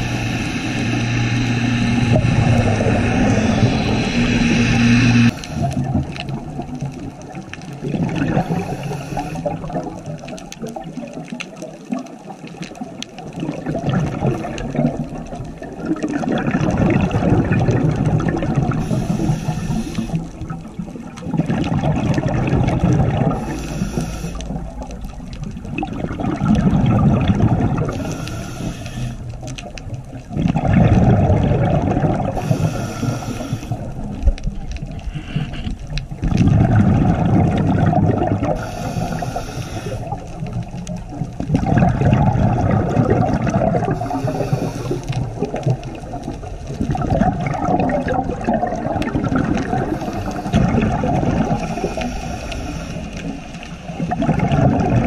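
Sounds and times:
underwater regulator breathing: 0.0 - 6.3, 8.2 - 9.8, 18.7 - 20.6, 23.2 - 24.9, 27.7 - 29.6, 32.2 - 36.0, 38.4 - 40.5, 43.6 - 46.0, 49.4 - 54.5
exhaled bubbles rushing: 0.0 - 55.0.

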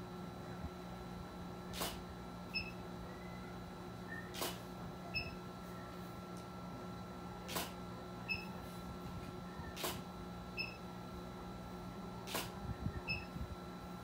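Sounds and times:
steady low hum: 0.0 - 14.0
camera shutter firing: 1.7 - 2.0, 4.3 - 4.6, 7.5 - 7.8, 9.8 - 10.0, 12.3 - 12.6.

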